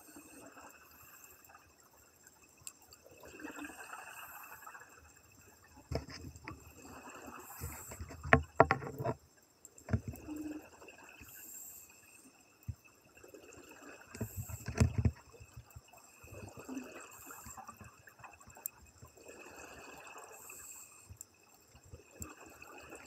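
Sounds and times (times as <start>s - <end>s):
regulator hissing inhale: 7.2s - 8.1s, 11.2s - 12.2s, 19.4s - 21.3s.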